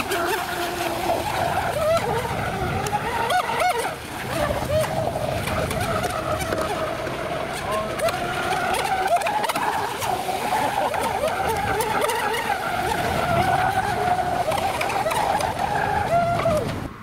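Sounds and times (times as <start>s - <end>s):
rc boat engine whining: 0.0s - 17.0s.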